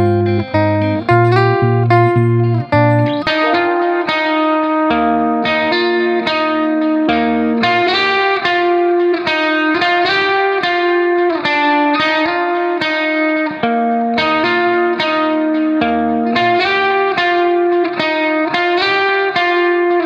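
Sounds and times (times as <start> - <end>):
plucked notes tune: 0.0 - 9.3.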